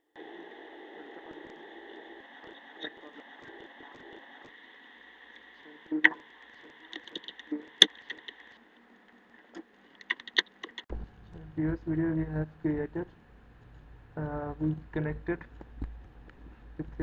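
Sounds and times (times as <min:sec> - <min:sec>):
microphone hiss: 0:00.0 - 0:17.0
computer mouse clicks: 0:06.9 - 0:08.5, 0:09.5 - 0:10.9.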